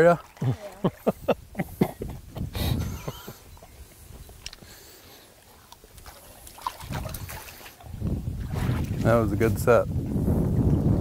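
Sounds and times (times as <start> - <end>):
water splashing and trickling: 0.0 - 11.0.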